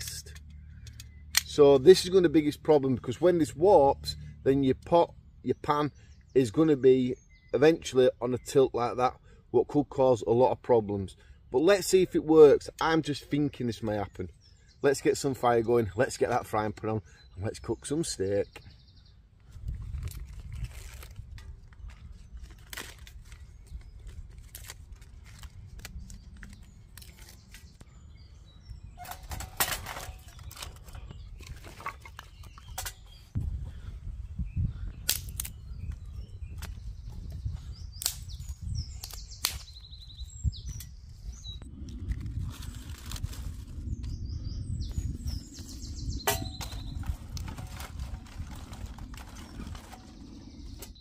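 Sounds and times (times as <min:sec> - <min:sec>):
birds chirping: 0:00.0 - 0:42.8, 0:43.7 - 0:51.0
dry leaves rustling and crackling: 0:19.8 - 0:27.8, 0:42.1 - 0:44.1, 0:46.3 - 0:50.4
steady low rumble: 0:32.8 - 0:39.2, 0:40.3 - 0:51.0.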